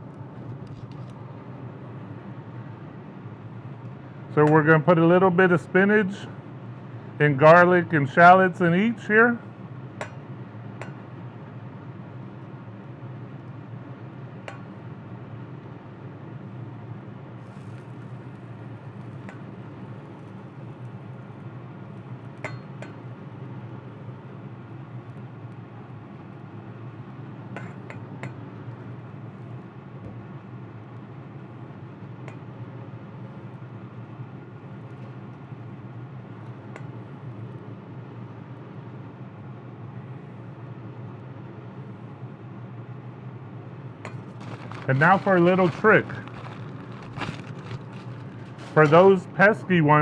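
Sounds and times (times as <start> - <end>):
gas burners humming: 41.7 - 50.0.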